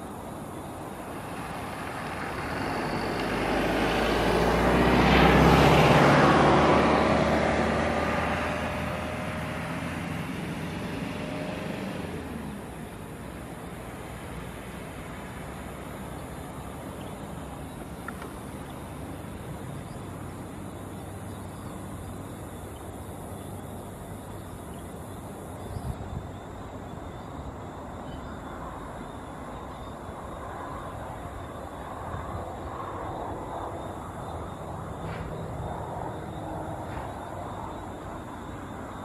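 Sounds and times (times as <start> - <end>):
jet engines rumbling: 26.1 - 39.0.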